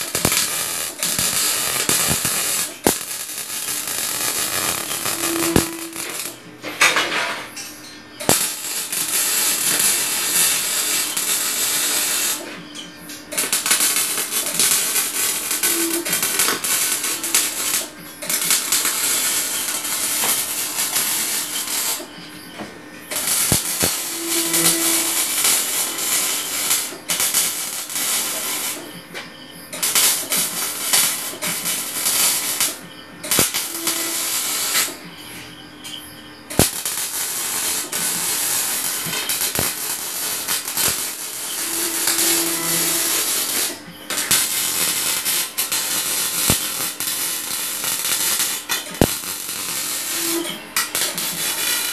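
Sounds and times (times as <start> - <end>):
arc welding crackling hiss: 0.0 - 6.5, 8.2 - 12.6, 13.3 - 22.4, 23.0 - 29.0, 29.7 - 35.0, 36.5 - 51.9.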